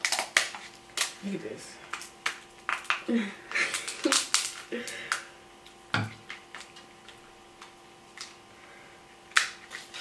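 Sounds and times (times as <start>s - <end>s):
crab shells cracking: 0.0s - 1.2s, 1.8s - 8.4s.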